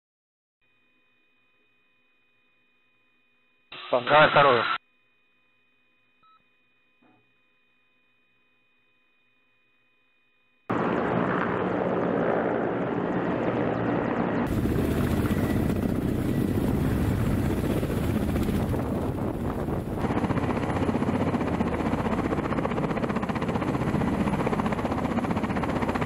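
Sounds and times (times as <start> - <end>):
helicopter rotor chop: 10.7 - 26.0.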